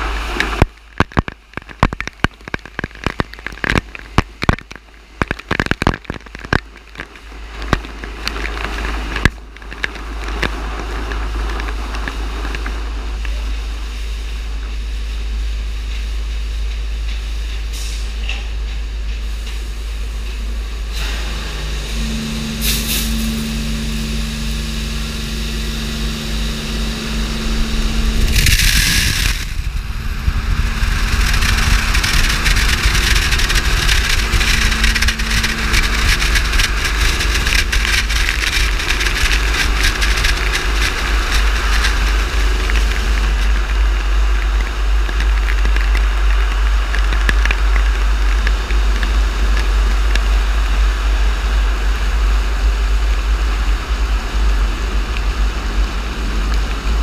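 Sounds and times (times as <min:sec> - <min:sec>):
car wash motor hum: 0:00.0 - 0:57.0
loud hiss: 0:10.0 - 0:45.0
water spraying: 0:19.0 - 0:57.0
rotating brushes slapping car: 0:30.8 - 0:50.2.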